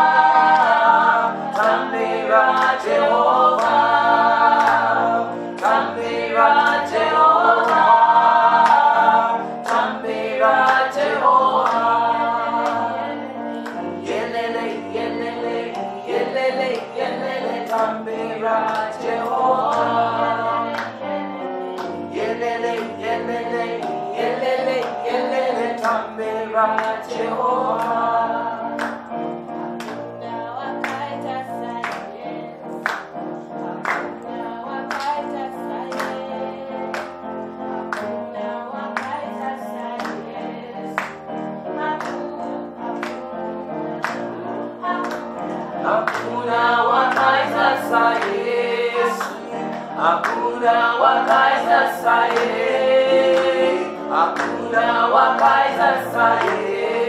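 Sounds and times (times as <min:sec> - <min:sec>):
women's choir singing gospel: 0:00.0 - 0:57.0.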